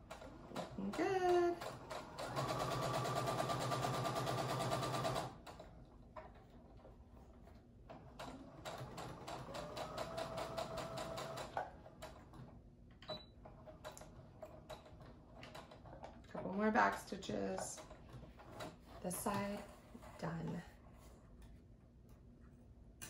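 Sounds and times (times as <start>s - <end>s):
sewing machine stitching: 0.0s - 5.6s, 7.9s - 12.5s.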